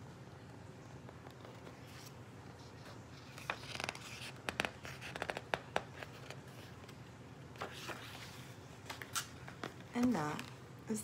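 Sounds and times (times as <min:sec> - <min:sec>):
book pages rustling: 0:00.9 - 0:10.6.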